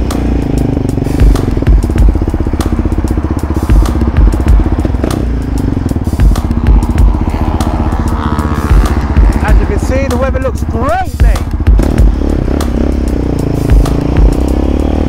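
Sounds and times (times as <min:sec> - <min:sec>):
quad bike engine running: 0:00.0 - 0:15.0
low thumps: 0:01.1 - 0:09.9.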